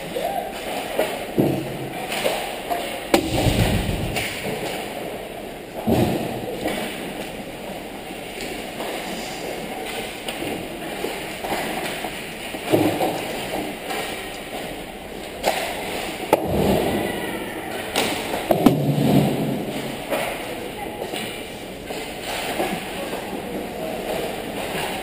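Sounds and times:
low thuds: 0:03.1 - 0:04.7
sharp crack: 0:03.1 - 0:04.7.

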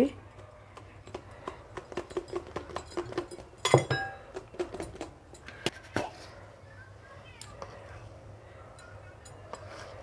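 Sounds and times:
clink off glass bowl: 0:03.6 - 0:04.2.

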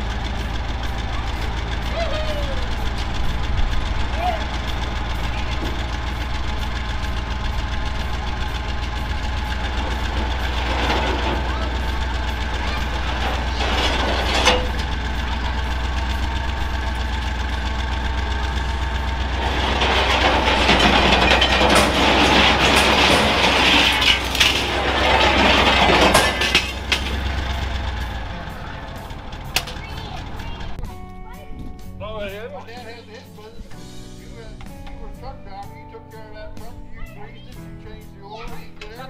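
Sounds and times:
truck engine running: 0:00.0 - 0:39.0
scrap metal scraping and clattering: 0:04.6 - 0:30.5.

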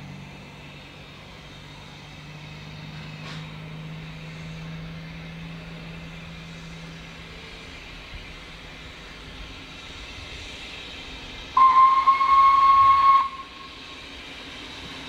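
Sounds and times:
steam locomotive whistle blast: 0:11.6 - 0:14.1.

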